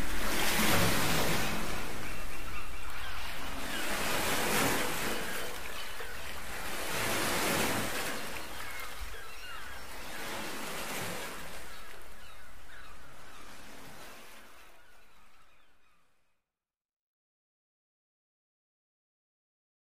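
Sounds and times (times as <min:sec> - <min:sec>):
small waves washing on beach: 0:00.0 - 0:15.0.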